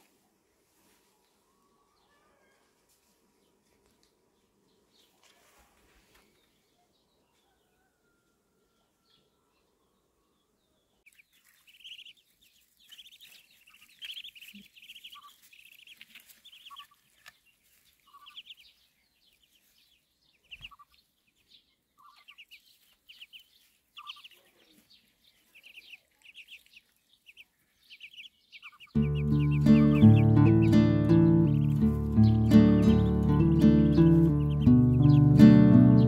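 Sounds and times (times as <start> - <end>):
ducklings peeping: 9.6 - 36.0.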